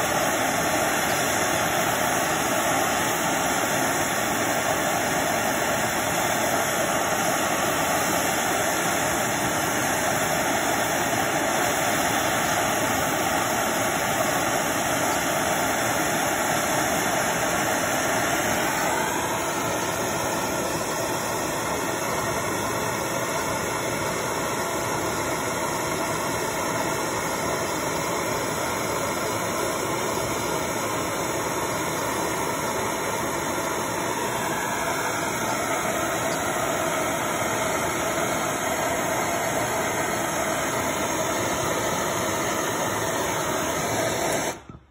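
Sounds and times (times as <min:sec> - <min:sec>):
gas torch hissing: 0:00.0 - 0:44.9.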